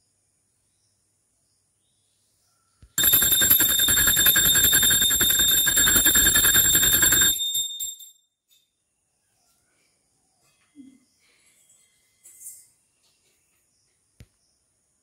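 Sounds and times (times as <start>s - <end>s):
hand bell ringing rapidly: 3.0s - 8.1s.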